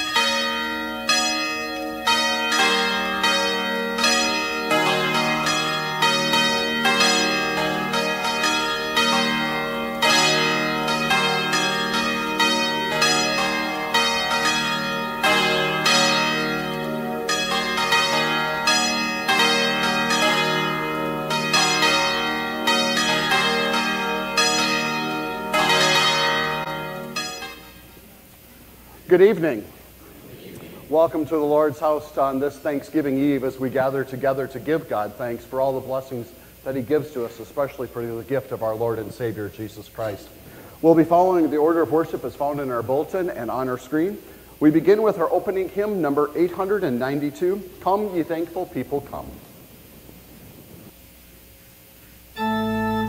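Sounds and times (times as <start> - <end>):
church bells ringing: 0.0 - 28.0, 40.0 - 49.4, 52.4 - 53.0
low held notes: 0.0 - 51.3, 52.0 - 53.0.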